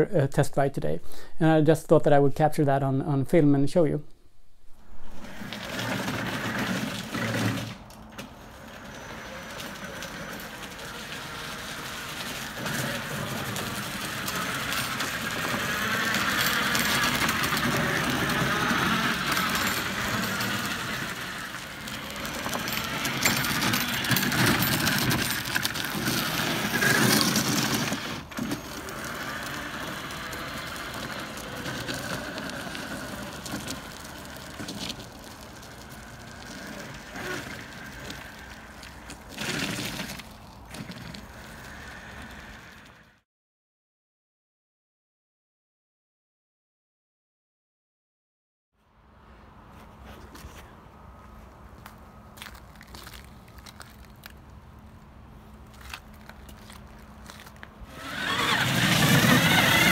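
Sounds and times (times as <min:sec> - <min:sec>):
electric drill motors running: 0:05.2 - 0:43.2, 0:56.6 - 0:59.9
vehicle rattling on gritty pavement: 0:05.2 - 0:43.2, 0:49.6 - 0:59.9.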